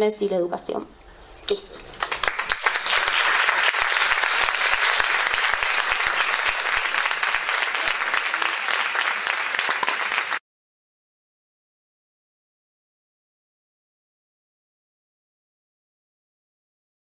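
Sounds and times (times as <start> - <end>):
audience applauding: 2.0 - 10.4.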